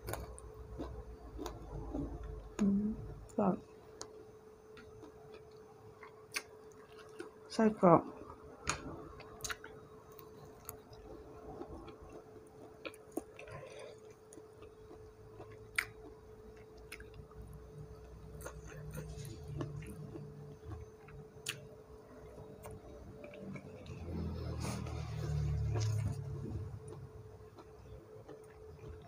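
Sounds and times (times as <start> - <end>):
soft chewing: 0.0 - 7.5, 8.1 - 29.0
faint steady hum: 0.0 - 29.0
low rumble: 22.2 - 27.4.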